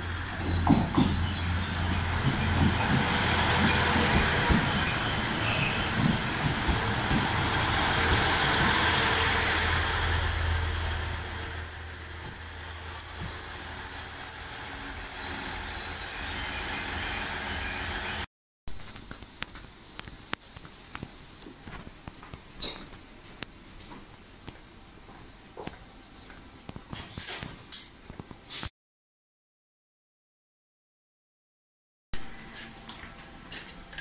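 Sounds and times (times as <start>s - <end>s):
diesel railcar engine humming: 0.0s - 18.2s
train wheels knocking: 0.4s - 11.8s
high-pitched brake squeal: 4.8s - 6.0s, 8.9s - 18.3s.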